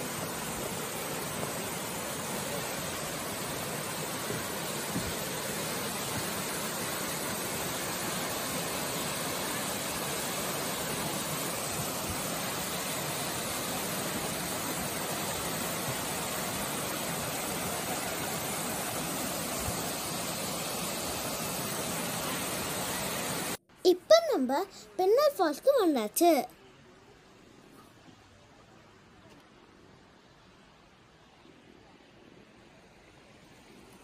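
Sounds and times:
waterfall rushing over rocks: 0:00.0 - 0:23.6.

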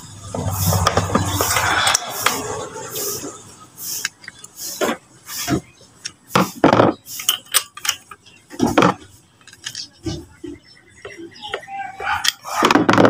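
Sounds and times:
metal tools clinking: 0:07.1 - 0:10.0.

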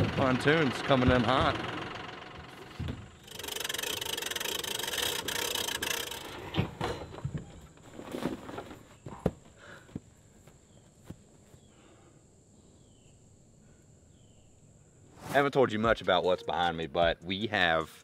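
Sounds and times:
knocks and clunks: 0:00.0 - 0:03.3, 0:06.2 - 0:10.1.

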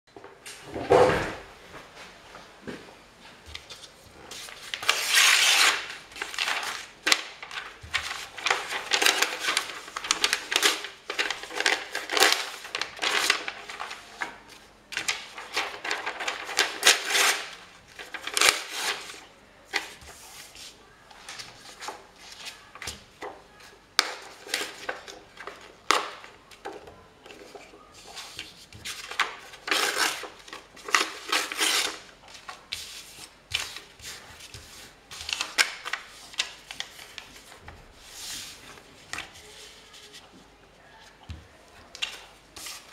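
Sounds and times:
paper tearing and crinkling: 0:04.4 - 0:14.1, 0:15.0 - 0:19.2, 0:29.0 - 0:32.1.

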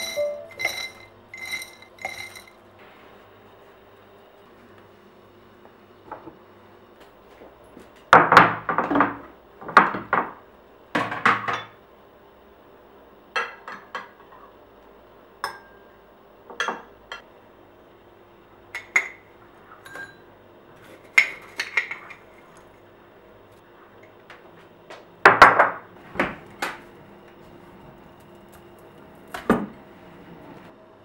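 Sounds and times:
spoon clinking on dishes: 0:00.0 - 0:02.5.

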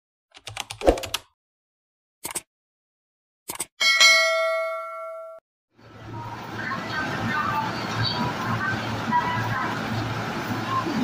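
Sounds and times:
keyboard typing clicks: 0:00.4 - 0:01.2, 0:02.2 - 0:02.4, 0:03.5 - 0:03.7
notification bell ding: 0:03.8 - 0:05.4.

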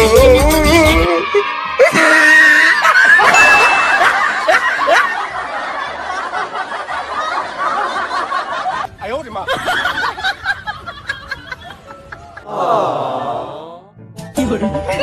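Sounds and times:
children laughing and shrieking: 0:01.1 - 0:08.8.

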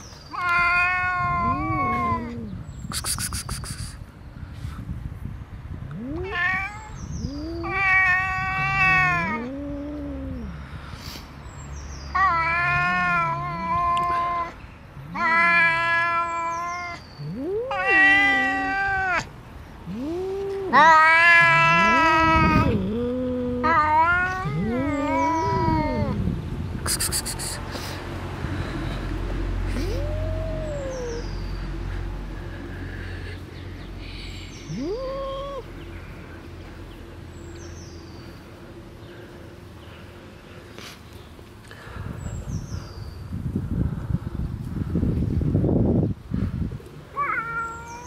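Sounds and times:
cats yowling: 0:00.3 - 0:02.6, 0:05.9 - 0:10.6, 0:12.1 - 0:26.2, 0:29.7 - 0:31.6, 0:34.6 - 0:35.8, 0:47.1 - 0:48.0
low cat moans: 0:00.9 - 0:02.7, 0:05.9 - 0:10.6, 0:12.2 - 0:15.8, 0:17.2 - 0:19.2, 0:19.8 - 0:26.2, 0:29.6 - 0:31.5, 0:34.3 - 0:35.8.

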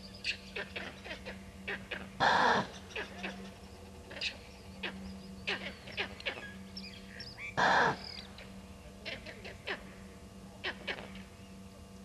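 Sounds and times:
loud harsh animal call: 0:00.3 - 0:06.6, 0:07.2 - 0:08.4
animal alarm calls: 0:00.3 - 0:09.9, 0:10.6 - 0:11.2.

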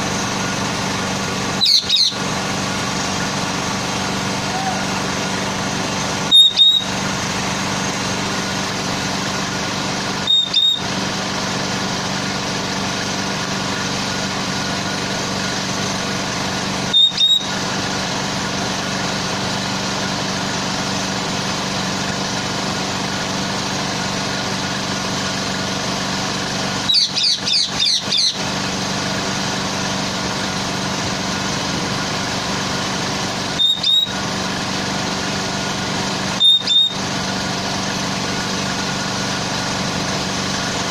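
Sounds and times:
truck engine idling: 0:00.0 - 0:40.9
short high chirp: 0:01.6 - 0:02.2, 0:36.4 - 0:37.0.

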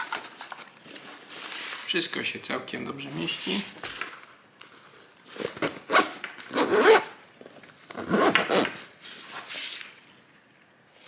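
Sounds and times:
bag zipper rasping closed: 0:05.4 - 0:07.1, 0:08.0 - 0:08.8.

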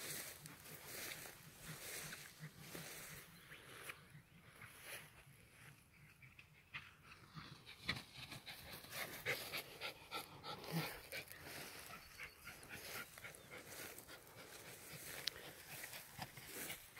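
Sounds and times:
dog panting: 0:07.0 - 0:16.9.

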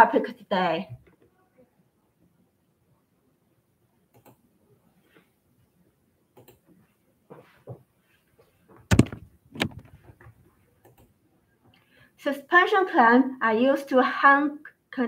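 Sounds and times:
sharp knocks: 0:08.9 - 0:09.9
camera handling clicks and rustles: 0:08.9 - 0:10.1.

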